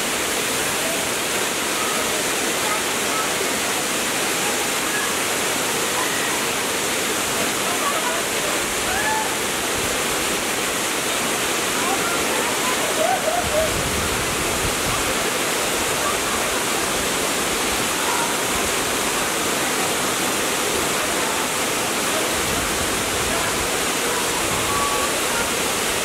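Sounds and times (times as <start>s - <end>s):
waterfall rushing: 0.0s - 26.0s.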